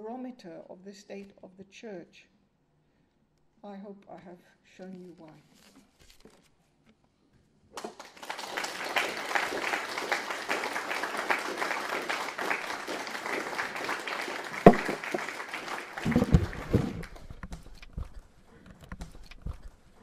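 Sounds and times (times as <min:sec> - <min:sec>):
audience applauding: 0:07.8 - 0:17.4
sharp knock: 0:14.7 - 0:15.0.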